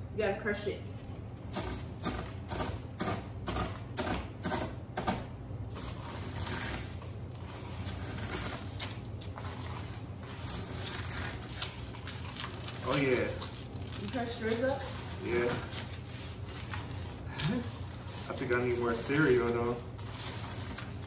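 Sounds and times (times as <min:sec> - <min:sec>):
cereal flakes crunching: 0:05.7 - 0:21.0.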